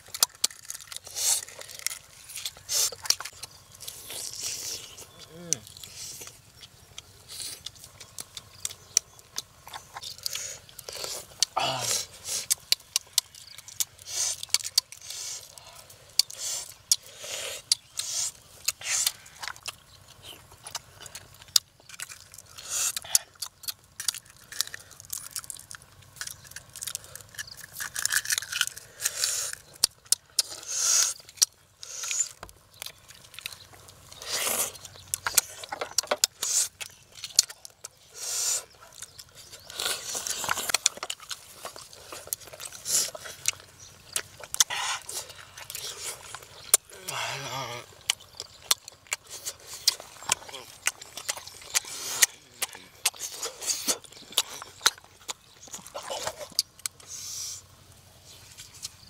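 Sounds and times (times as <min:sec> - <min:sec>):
eggs cracked and peeled: 0:00.0 - 0:57.1
chewing: 0:00.0 - 0:59.0.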